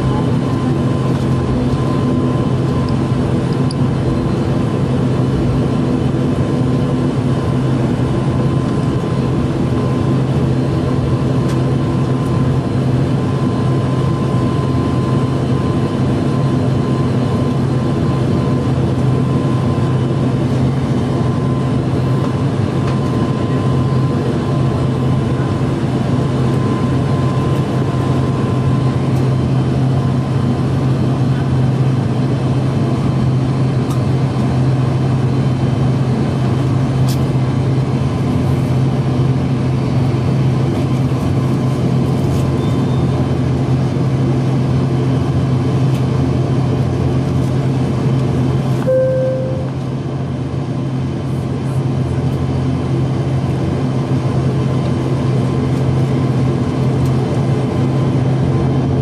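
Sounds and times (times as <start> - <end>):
turboprop engines droning: 0.0 - 59.0
thin steady hum: 48.8 - 49.8.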